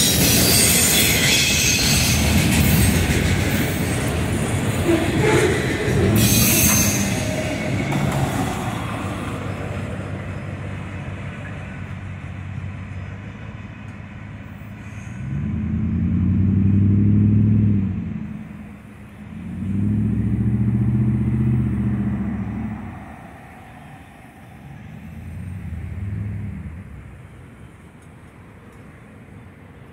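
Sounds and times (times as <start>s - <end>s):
freight train cars rumbling: 0.0s - 29.9s
vehicles passing with droning engine: 7.0s - 29.9s.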